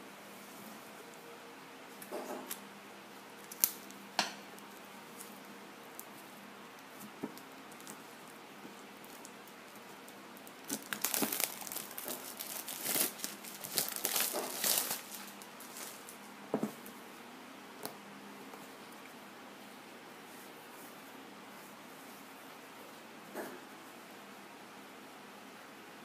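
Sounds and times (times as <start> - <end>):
plastic wrap crinkling: 3.4 - 4.0, 9.0 - 16.2.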